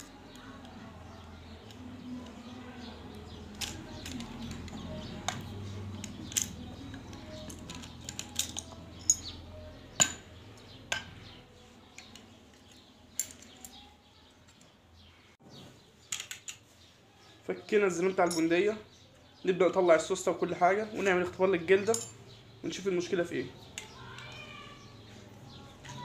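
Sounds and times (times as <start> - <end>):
metallic clicks of rifle parts: 6.0 - 9.3.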